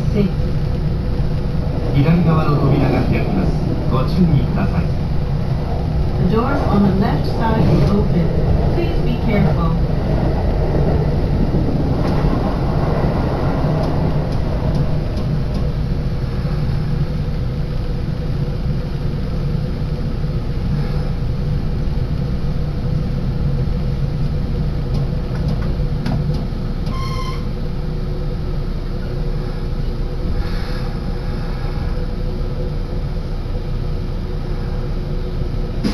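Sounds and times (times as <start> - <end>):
electric train rumbling: 0.0 - 35.9
short high beep: 26.9 - 27.5.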